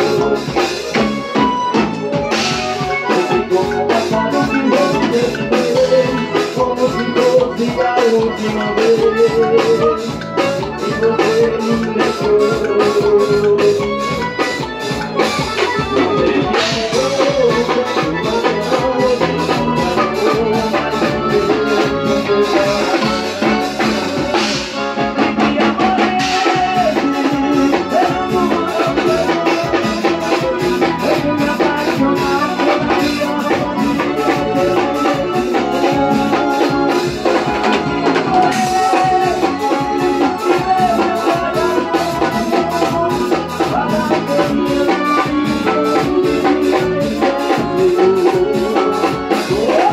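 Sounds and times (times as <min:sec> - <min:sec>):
accordion melody: 0:00.0 - 0:49.9
drum kit: 0:00.0 - 0:49.9
electric bass: 0:00.0 - 0:49.9
keyboard: 0:00.0 - 0:49.9.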